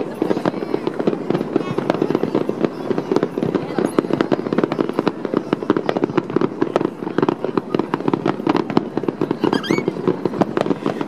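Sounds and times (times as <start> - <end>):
fireworks bangs and crackles: 0.0 - 11.0.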